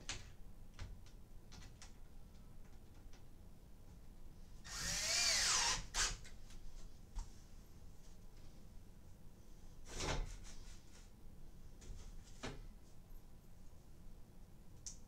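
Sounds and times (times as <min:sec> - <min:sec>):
cordless drill driving screw: 0:04.7 - 0:06.2.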